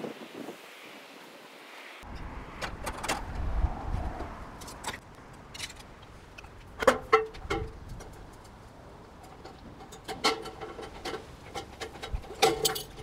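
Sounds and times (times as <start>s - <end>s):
metallic clicks and clanks: 4.6s - 13.0s.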